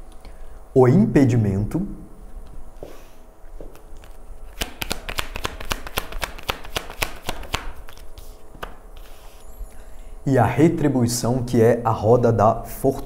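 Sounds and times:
cards being shuffled: 3.7 - 9.4.

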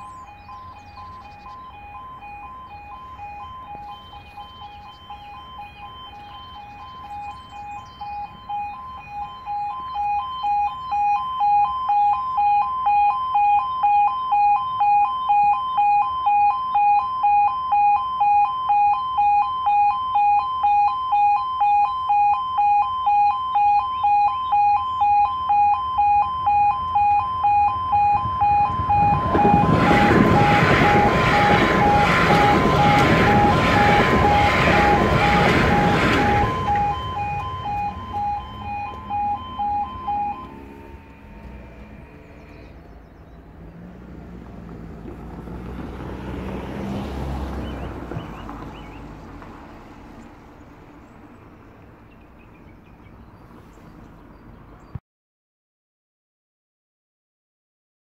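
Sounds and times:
level crossing warning alarm: 0.0 - 43.9
train passing rumble: 26.3 - 54.8.

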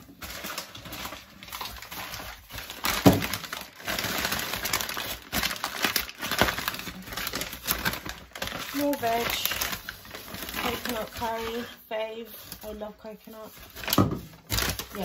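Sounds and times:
paper bag rustling and crinkling: 0.0 - 15.0.

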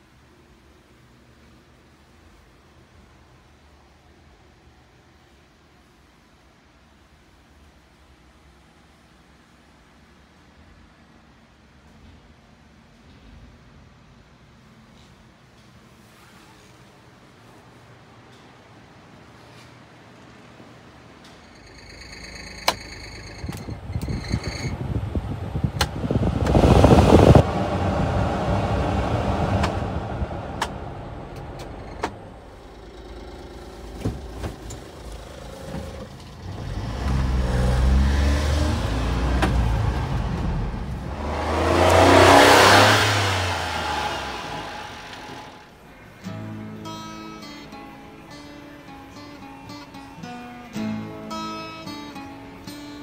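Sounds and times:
small truck engine revving: 21.5 - 45.7
broad rushing noise: 23.7 - 32.7, 37.1 - 46.1
loud rush of noise: 24.7 - 32.8, 37.2 - 46.1.

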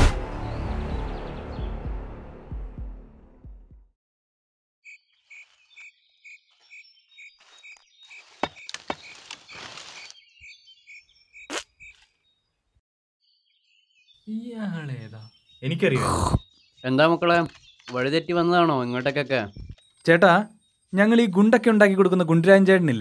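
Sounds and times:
music: 0.0 - 3.9
footsteps through grass: 5.2 - 10.4.

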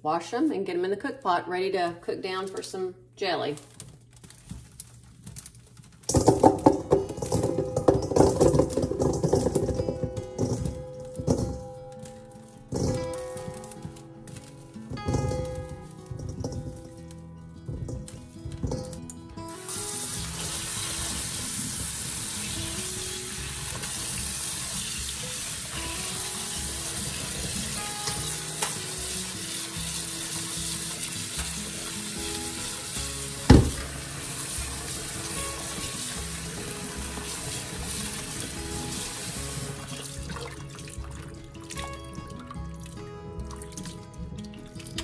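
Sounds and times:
faucet running into metal sink: 19.5 - 41.3.

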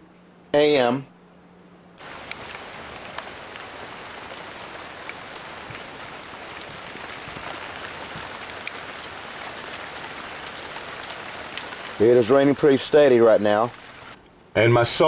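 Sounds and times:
steady rain hiss: 0.5 - 15.0.

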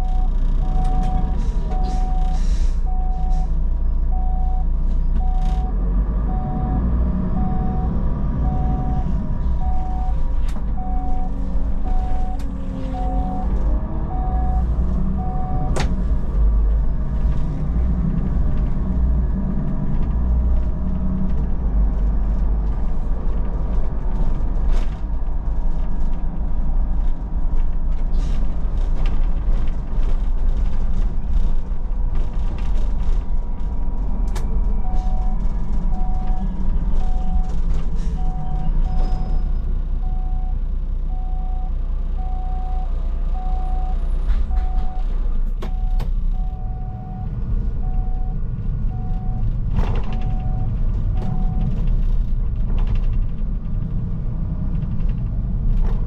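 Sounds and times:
bus engine rumble: 0.0 - 56.0
short warning beeps: 13.0 - 13.5, 40.0 - 45.1, 45.7 - 49.4.

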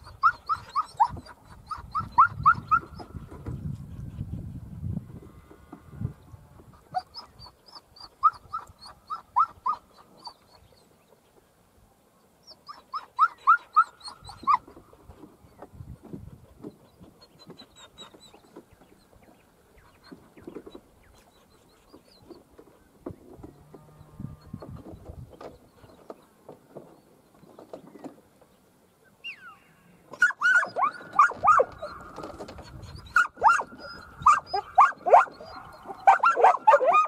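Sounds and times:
dog yipping: 0.0 - 3.1, 6.9 - 10.4, 12.6 - 14.7, 30.2 - 37.0.

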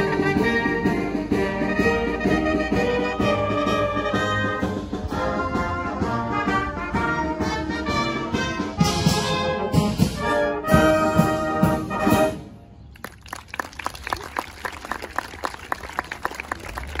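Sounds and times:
brass band playing: 0.0 - 12.8
scattered applause: 12.9 - 17.0.

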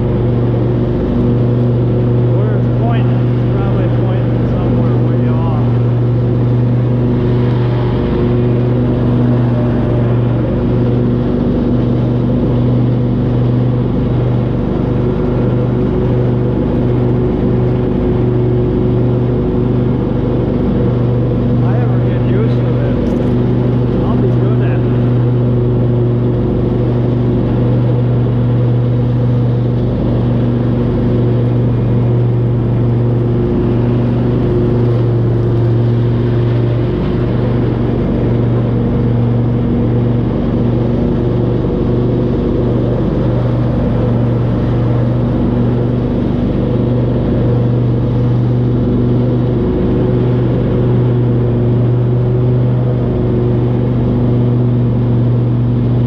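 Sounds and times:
riding lawn mower engine: 0.0 - 56.0.

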